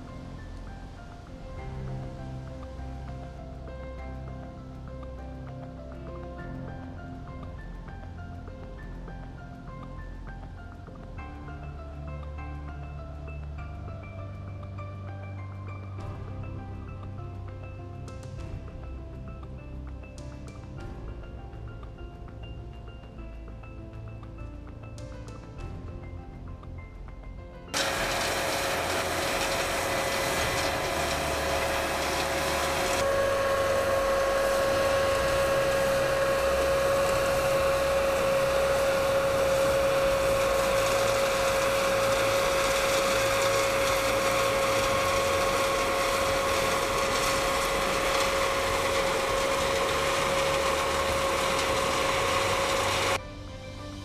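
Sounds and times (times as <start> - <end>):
combine harvester running: 27.8 - 53.2.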